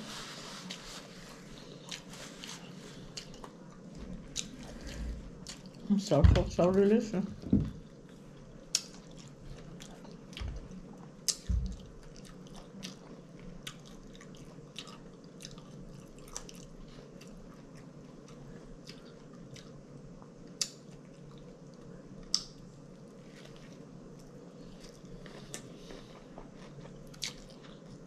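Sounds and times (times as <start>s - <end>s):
person chewing: 0.6s - 5.9s, 7.8s - 22.6s, 23.2s - 28.0s
lip smacks and clicks: 22.3s - 22.6s.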